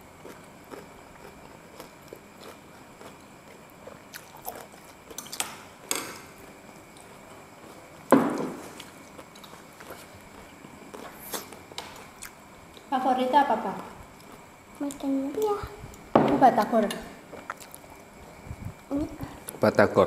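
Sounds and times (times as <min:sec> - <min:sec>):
person chewing: 0:00.2 - 0:05.4, 0:08.6 - 0:12.9, 0:17.3 - 0:18.4.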